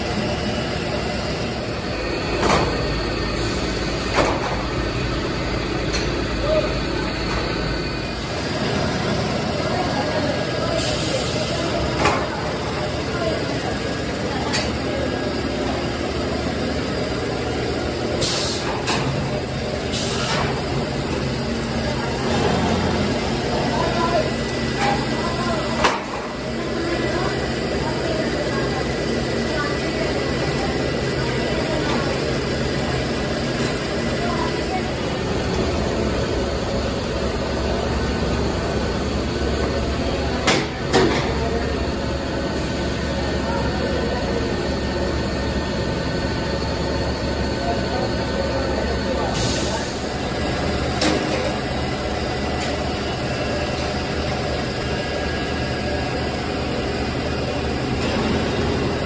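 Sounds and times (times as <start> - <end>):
machinery hum and drone: 0.0 - 28.8
extrusion machine running: 0.0 - 59.0.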